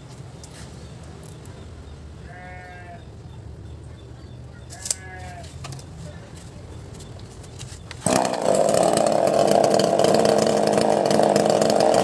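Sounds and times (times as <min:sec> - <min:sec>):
animal bleating: 0:02.2 - 0:03.1, 0:04.7 - 0:05.6.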